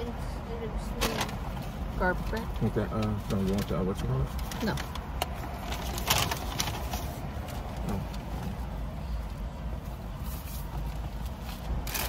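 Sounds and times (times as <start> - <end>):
paper bags rustling: 3.1 - 7.4.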